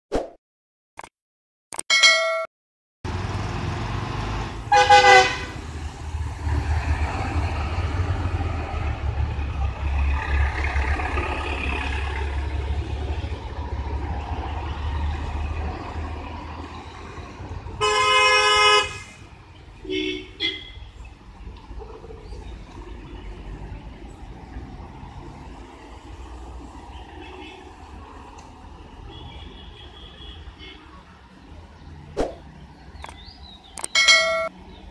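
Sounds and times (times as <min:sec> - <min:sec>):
vehicle engine rumble: 0:03.1 - 0:17.8
multi-tone vehicle horn honk: 0:04.7 - 0:05.6, 0:17.8 - 0:19.1.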